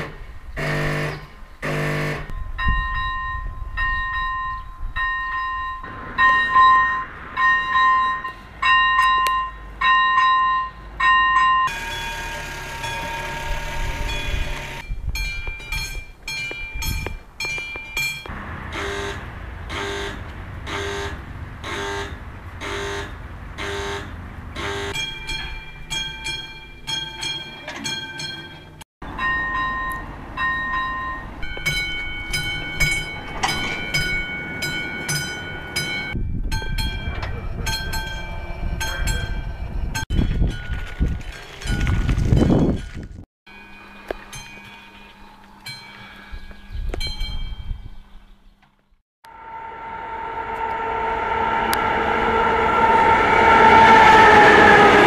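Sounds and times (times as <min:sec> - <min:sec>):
level crossing bells ringing: 0:01.7 - 0:40.8, 0:43.5 - 0:47.8.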